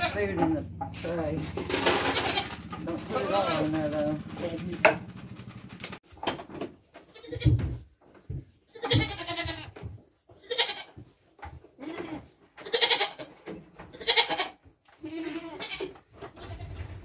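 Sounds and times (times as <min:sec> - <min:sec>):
goat bleating: 0:00.0 - 0:00.4, 0:01.8 - 0:03.7, 0:07.0 - 0:07.6, 0:08.7 - 0:09.8, 0:10.4 - 0:11.0, 0:11.8 - 0:16.9.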